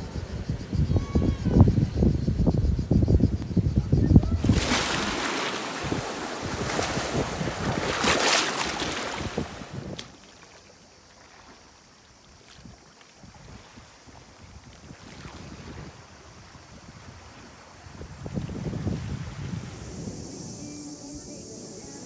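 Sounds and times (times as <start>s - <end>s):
wind buffeting microphone: 0.0s - 10.1s, 13.2s - 20.8s
sea waves on rocky shore: 4.4s - 10.0s.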